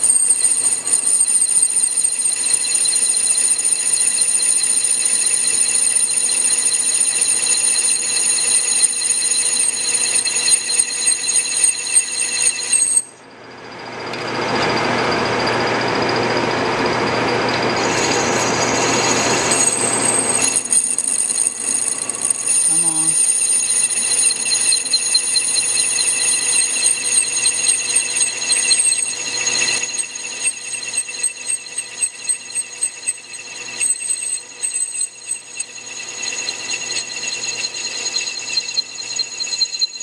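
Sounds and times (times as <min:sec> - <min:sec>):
lathe parting tool squealing: 0:00.0 - 0:13.2, 0:14.4 - 0:40.0.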